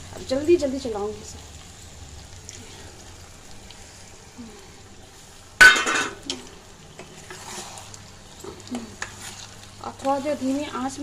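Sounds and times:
spatula stirring in frying pan: 5.1 - 11.0.

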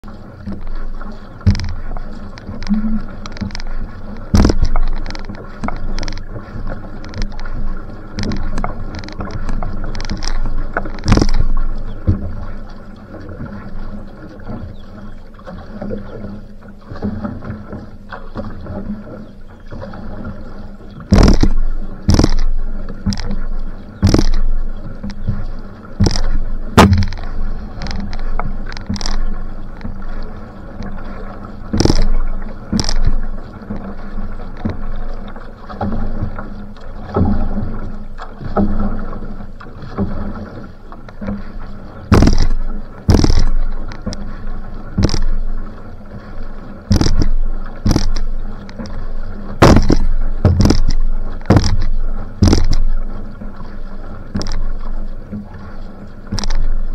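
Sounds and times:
paddle strokes splashing: 0.0 - 56.9
water rushing along hull: 0.0 - 56.9
sharp knocks: 4.3 - 6.2, 8.2 - 11.5, 21.1 - 22.5, 24.0 - 24.4, 26.0 - 28.1, 42.1 - 43.6, 45.0 - 45.3, 46.9 - 48.3, 49.6 - 52.8.

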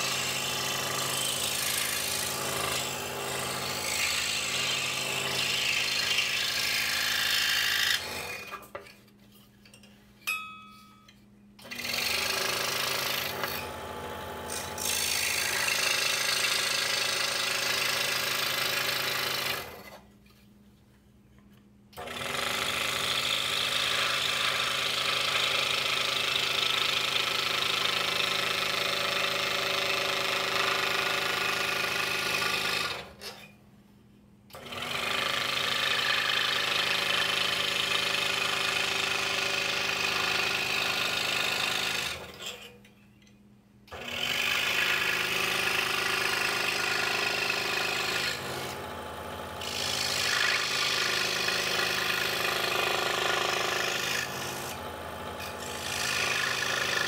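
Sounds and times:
scroll saw cutting wood: 0.0 - 8.8, 11.6 - 20.0, 22.0 - 33.5, 34.6 - 42.8, 43.9 - 57.0.

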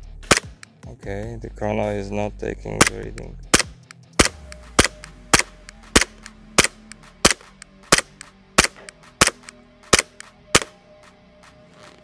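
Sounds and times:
airsoft pistol shots: 0.2 - 0.6, 2.8 - 10.8.

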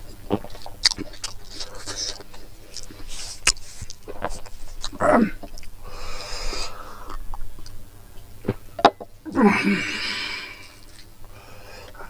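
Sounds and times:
person chewing with mouth clicks: 0.0 - 5.8, 6.4 - 8.6
breathy vocal sound: 9.3 - 12.0.

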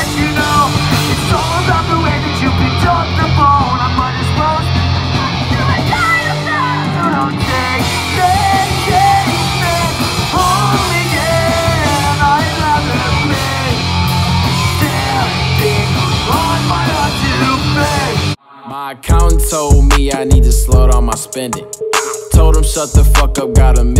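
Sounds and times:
punk rock band playing live: 0.0 - 18.4
person singing and yelling: 0.0 - 23.9.

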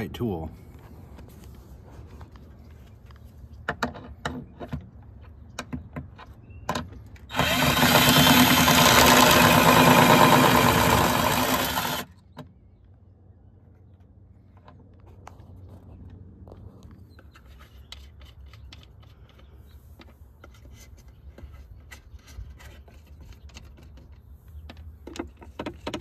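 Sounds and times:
cordless drill running: 7.3 - 12.1.

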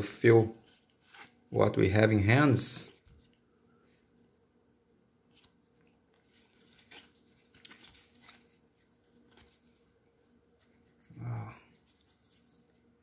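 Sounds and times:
cards rustling: 0.4 - 1.4, 5.3 - 12.8.

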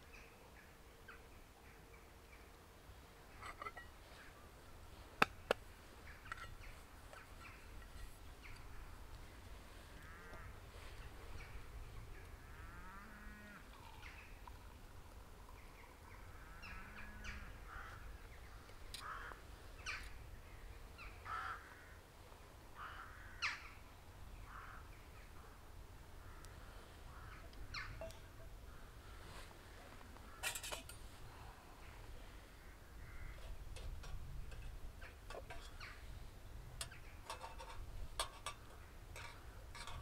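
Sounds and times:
low wind rumble: 2.6 - 40.0
metal mugs clinking: 3.4 - 4.0, 30.4 - 31.0, 37.2 - 40.0
bird cawing: 9.9 - 10.6, 16.2 - 18.2, 18.9 - 20.0, 21.1 - 22.0, 22.8 - 23.8, 24.5 - 24.9, 26.2 - 28.1, 29.8 - 30.7, 32.4 - 33.6.

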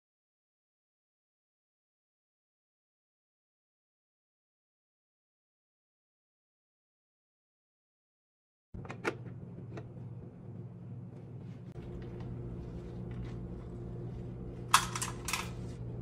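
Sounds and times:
low steady hum: 8.8 - 16.0.

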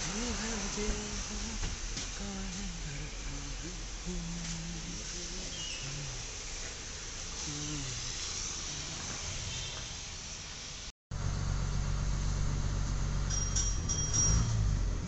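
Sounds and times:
bus cabin noise: 0.0 - 8.0
bus engine droning: 0.0 - 15.0.

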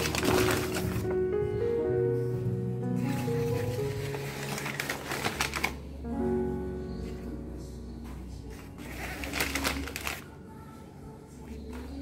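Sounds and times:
paper towel crinkling: 0.0 - 1.2, 3.0 - 6.0, 8.5 - 10.4
soft background music: 0.0 - 12.0.

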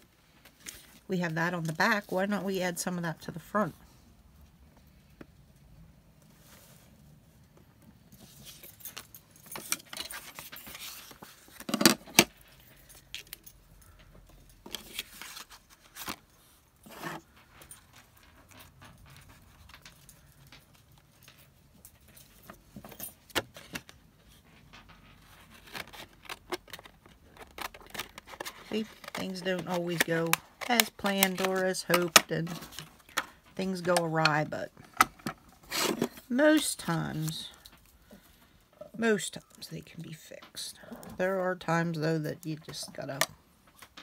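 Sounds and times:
paper rustling: 9.6 - 11.8, 14.6 - 20.3.

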